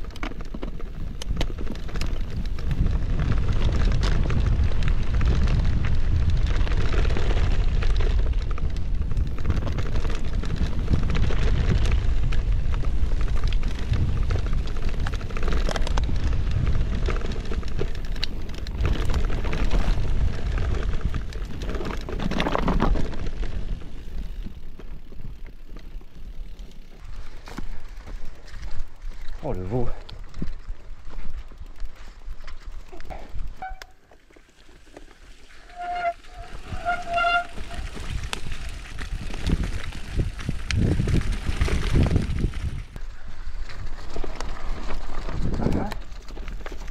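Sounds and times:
bike tyres rattling on stony track: 0.0s - 46.9s
wind buffeting microphone: 0.8s - 24.7s, 36.0s - 46.9s.

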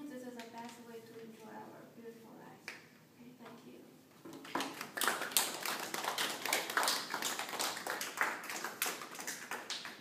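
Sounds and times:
people applauding: 4.4s - 10.0s.

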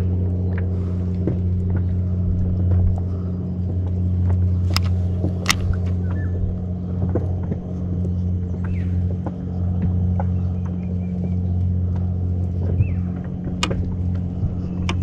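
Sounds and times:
low machine hum: 0.0s - 15.0s
sharp clicks: 4.4s - 6.2s.

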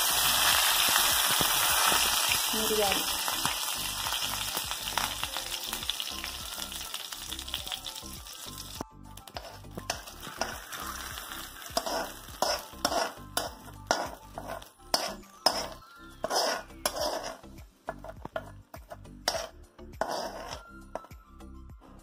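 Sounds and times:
hot oil sizzling: 0.0s - 21.1s
metal spoon scraping and knocking: 9.3s - 21.2s.

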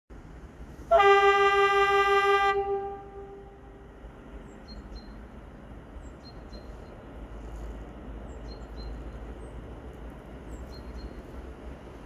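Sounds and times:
locomotive horn: 0.9s - 3.9s.

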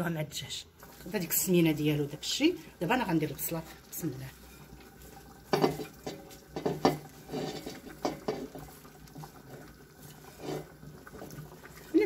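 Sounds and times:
knocks and clinks on pot: 5.5s - 8.6s
onion dropping into pot: 5.5s - 8.7s.

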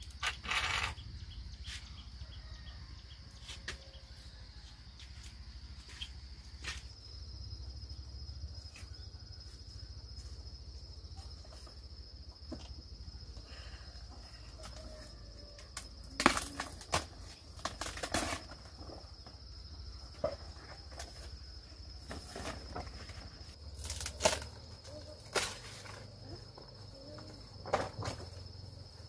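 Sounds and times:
high insect drone: 0.0s - 29.0s.

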